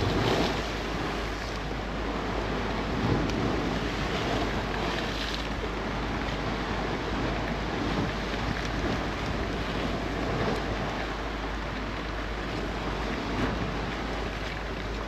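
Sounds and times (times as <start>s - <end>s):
wind on microphone: 0.0s - 11.4s.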